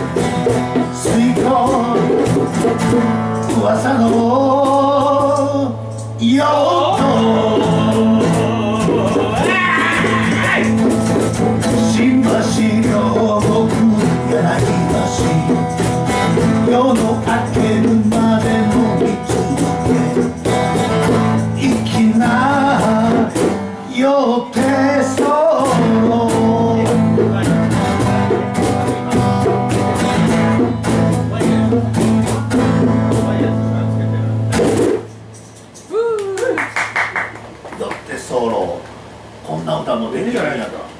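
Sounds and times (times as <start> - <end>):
acoustic guitar strumming: 0.0 - 35.9
man singing: 0.9 - 2.6, 3.2 - 10.9, 11.6 - 20.6, 21.4 - 27.5.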